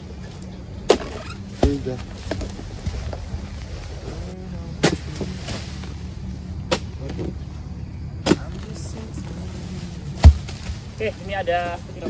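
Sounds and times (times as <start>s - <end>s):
chisel chopping into palm fronds: 0.8s - 2.5s, 4.8s - 5.8s, 8.2s - 8.7s, 10.2s - 10.8s.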